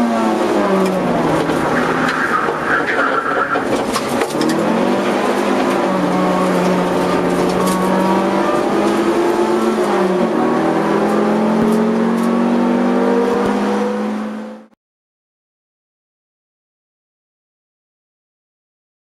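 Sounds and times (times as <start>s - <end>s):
car engine accelerating: 0.0s - 14.8s.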